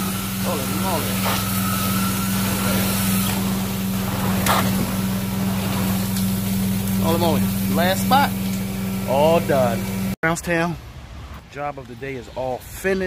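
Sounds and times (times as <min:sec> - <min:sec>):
carpet extraction vacuum droning: 0:00.0 - 0:10.2.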